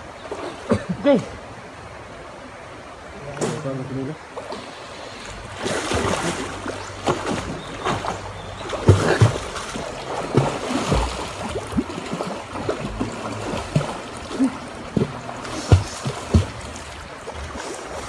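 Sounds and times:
water splashing around boat: 0:00.0 - 0:01.2, 0:03.1 - 0:18.0.

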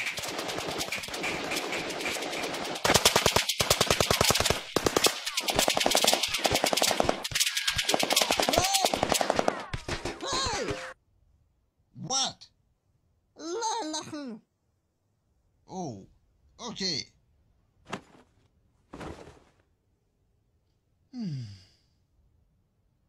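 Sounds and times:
machine-gun bursts: 0:00.0 - 0:10.9.

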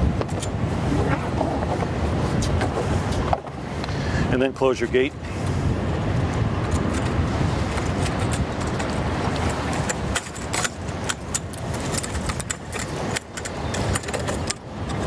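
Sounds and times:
metallic clicks and clinks: 0:08.0 - 0:15.0.

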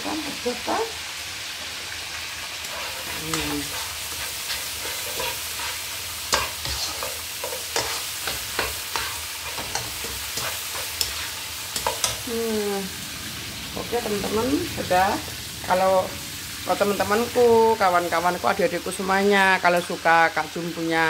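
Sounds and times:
paste sizzling in a wok: 0:00.0 - 0:21.0
spatula scraping a pan: 0:02.6 - 0:12.2.

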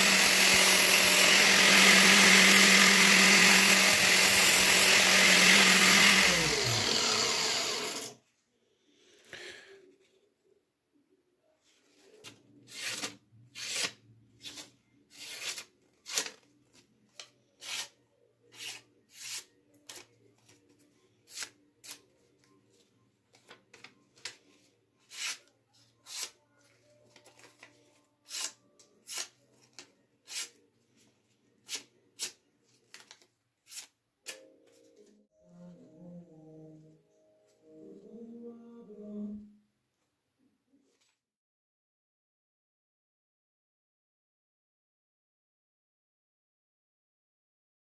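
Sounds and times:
knife slicing paper: 0:12.7 - 0:16.5, 0:25.0 - 0:26.4, 0:28.2 - 0:29.4, 0:31.6 - 0:34.4.

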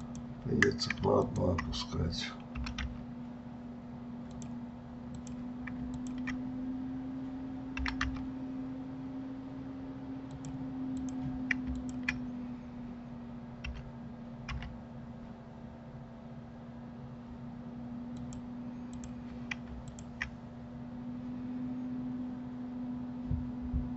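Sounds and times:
computer keyboard keystrokes: 0:00.0 - 0:01.8, 0:02.4 - 0:03.0, 0:04.2 - 0:06.4, 0:07.8 - 0:08.3, 0:10.3 - 0:12.3, 0:13.6 - 0:13.9, 0:14.5 - 0:14.8, 0:18.2 - 0:20.4
steady low hum: 0:00.0 - 0:23.9
mouse clicks: 0:04.2 - 0:06.4, 0:10.3 - 0:12.3, 0:18.1 - 0:20.4.

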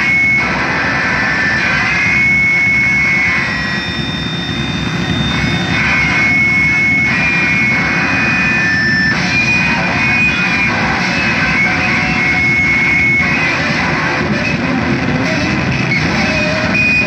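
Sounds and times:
high whistling tones: 0:00.0 - 0:14.6, 0:15.8 - 0:17.0
dense wall of noise: 0:00.0 - 0:17.0.

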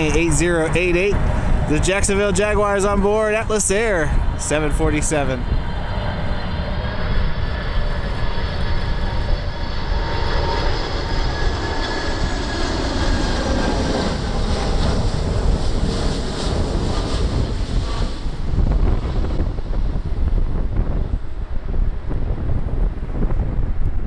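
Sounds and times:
jet engines rumbling overhead: 0:00.0 - 0:24.0.

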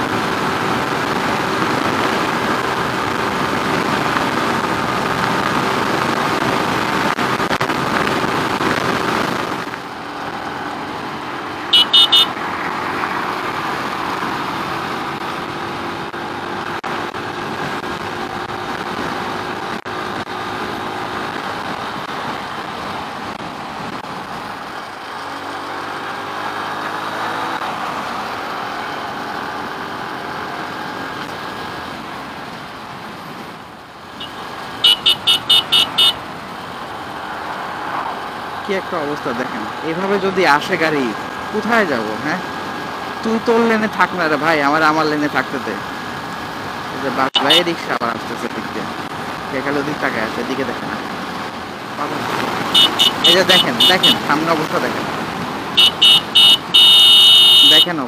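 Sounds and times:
motorcycle engine cruising: 0:00.0 - 0:48.0, 0:48.6 - 0:58.0
horn quick beeps: 0:11.7 - 0:12.3, 0:34.2 - 0:36.2, 0:47.4 - 0:47.6, 0:52.8 - 0:54.2, 0:55.8 - 0:57.9.

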